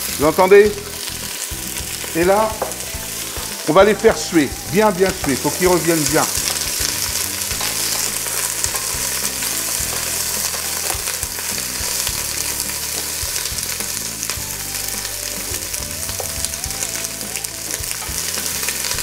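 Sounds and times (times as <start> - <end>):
onions sizzling in oil: 0.0 - 19.0
wooden spoon scraping and knocking: 1.8 - 4.3, 5.1 - 13.7.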